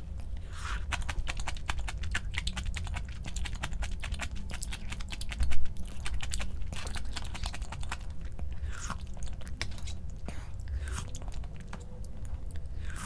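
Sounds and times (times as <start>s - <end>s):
chewing crunchy food: 0.1s - 13.0s.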